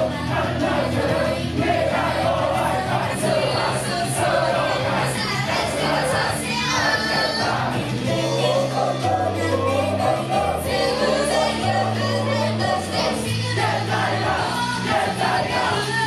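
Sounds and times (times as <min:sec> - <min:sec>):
bass line: 0:00.0 - 0:16.0
group singing pop song: 0:00.0 - 0:16.0.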